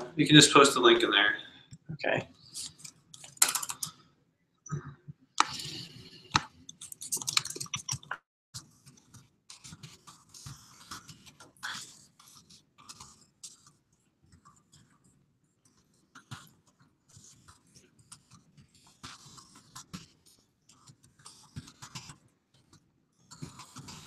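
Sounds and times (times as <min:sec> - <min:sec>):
typing on a computer keyboard: 0:06.6 - 0:08.2.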